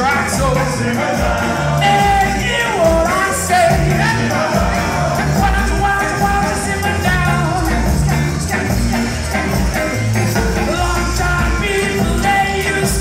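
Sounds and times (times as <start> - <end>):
bass guitar: 0.0 - 13.0
person singing: 10.4 - 13.0.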